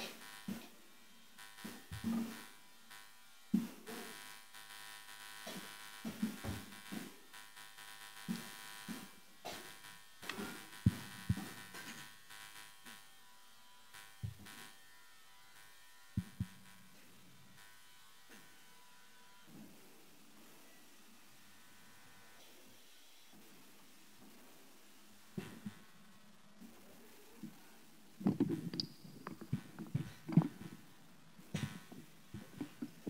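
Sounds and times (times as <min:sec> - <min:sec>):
electrical buzz and hum: 0:00.0 - 0:20.6, 0:24.4 - 0:33.0
low thumps and knocks: 0:28.2 - 0:30.8.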